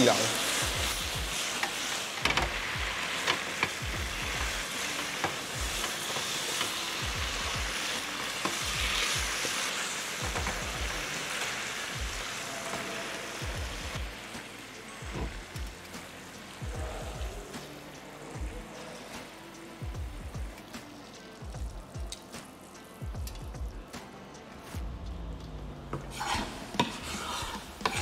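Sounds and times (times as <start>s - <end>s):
meat sizzling in a frying pan: 0.0s - 23.2s, 26.1s - 28.0s
metal tongs clicking on pan: 1.6s - 3.8s, 22.1s - 22.4s.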